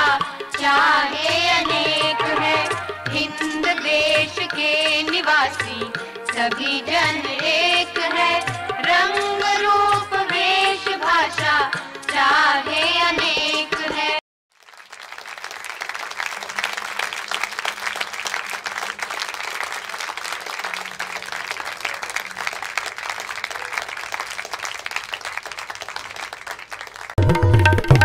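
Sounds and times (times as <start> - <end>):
recorded song with singing: 0.0 - 14.2
audience applauding: 14.5 - 28.0.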